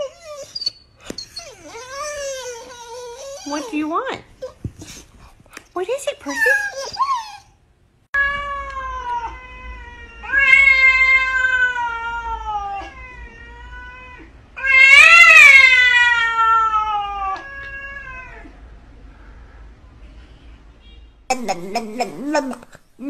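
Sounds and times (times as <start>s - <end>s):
cat yowling: 8.2s - 18.5s.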